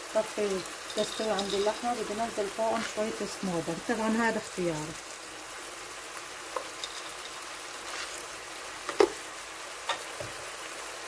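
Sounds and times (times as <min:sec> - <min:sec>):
meat and onions sizzling: 0:00.0 - 0:11.0
sharp pops from frying: 0:06.4 - 0:10.5.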